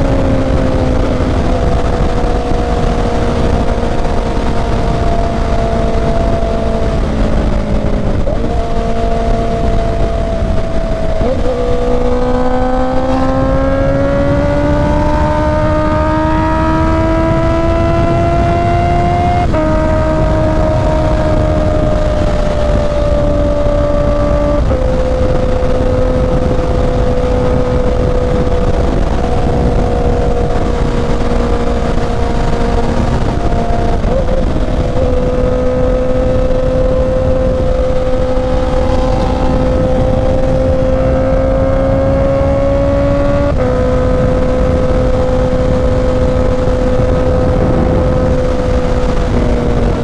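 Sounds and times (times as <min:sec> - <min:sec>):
motorcycle engine cruising: 0:00.0 - 0:50.0
wind rush on microphone: 0:00.0 - 0:50.0.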